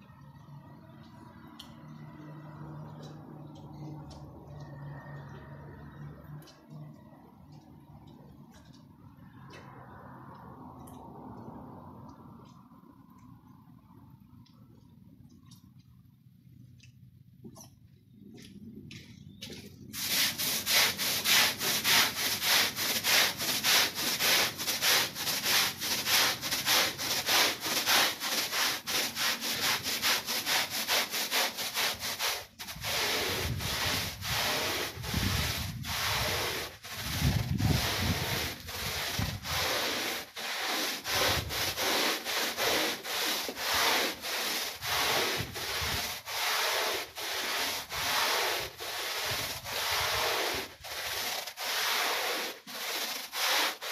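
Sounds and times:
brush scrubbing soapy rug: 19.9s - 53.9s.

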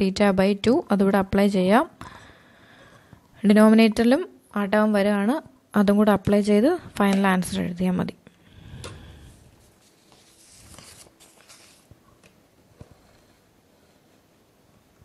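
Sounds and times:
paper sliding across paper: 9.6s - 11.9s.

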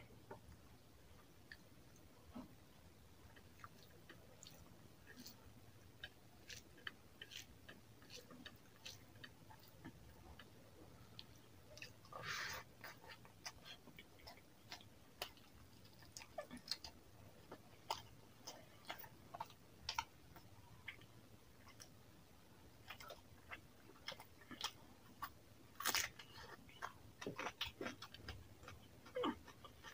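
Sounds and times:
fingers squishing wet rice: 3.3s - 10.6s
chewing mouth clicks and smacks: 6.0s - 10.5s.

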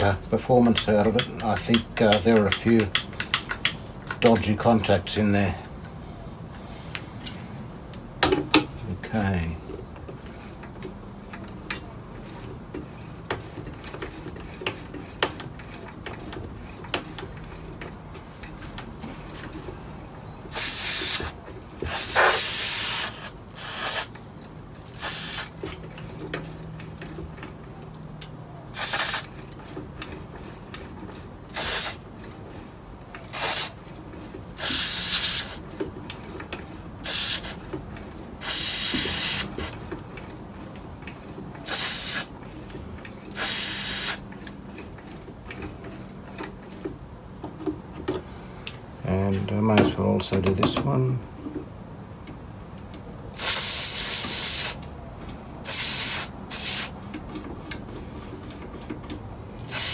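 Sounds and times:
aerosol can spraying: 20.5s - 24.1s, 25.0s - 25.5s, 28.8s - 29.3s, 31.5s - 32.0s, 33.4s - 33.8s, 34.6s - 35.6s, 37.1s - 37.6s, 38.4s - 39.7s, 41.7s - 42.3s, 43.4s - 44.2s, 53.4s - 54.8s, 55.6s - 57.0s, 59.7s - 59.9s.

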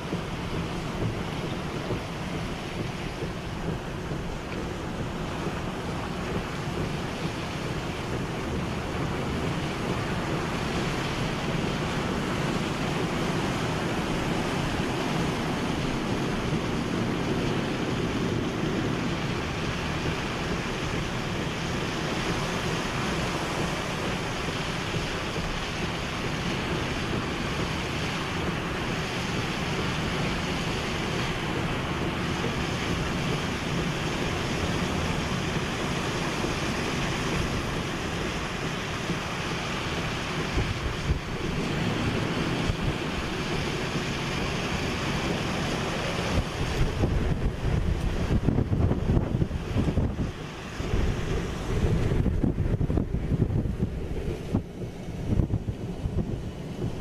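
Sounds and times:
heavy rain: 0.0s - 57.0s
hurricane wind: 0.0s - 57.0s.

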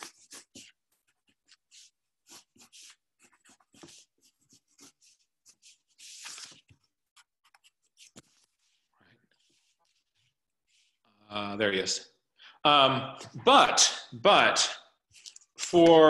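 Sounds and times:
pencil scratching on paper: 0.0s - 11.1s.

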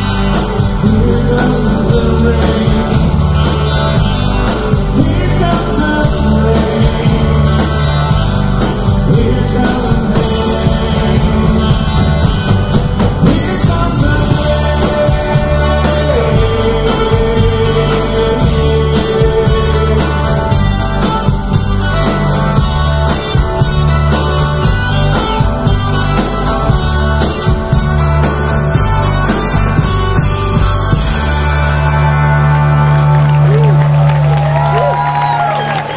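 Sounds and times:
lead voice singing: 0.0s - 21.3s
strummed acoustic guitars: 0.0s - 34.0s
drum kit: 0.0s - 35.9s
electric twelve-string guitar: 0.0s - 35.9s
upright bass: 0.0s - 35.9s.

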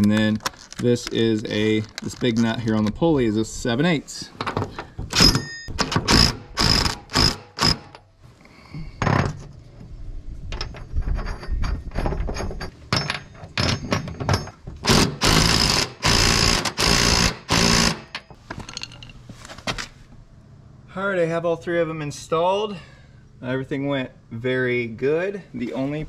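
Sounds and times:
impact driver hammering: 5.1s - 8.0s, 14.8s - 18.2s.

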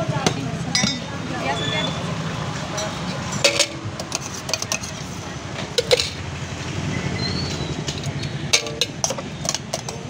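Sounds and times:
street traffic rumble: 0.0s - 10.0s
spoon clinking on steel tins: 2.8s - 5.1s, 5.8s - 6.2s, 7.8s - 10.0s.

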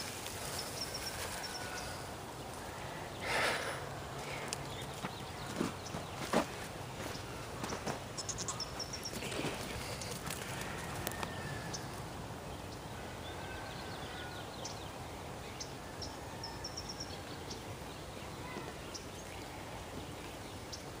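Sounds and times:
steady background hiss: 0.0s - 21.0s
bird chirping: 7.1s - 12.0s.

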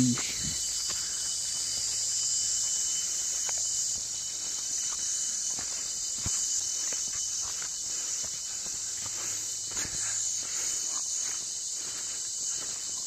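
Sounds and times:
thin whining tone: 0.0s - 10.0s
footsteps in undergrowth: 0.0s - 13.0s
high-pitched insect chorus: 0.0s - 13.0s.

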